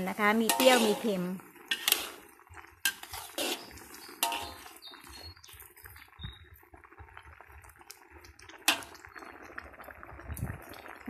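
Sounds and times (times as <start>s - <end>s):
metal ladle scraping a wok: 0.0s - 5.3s, 8.7s - 9.0s
curry simmering: 0.0s - 11.0s.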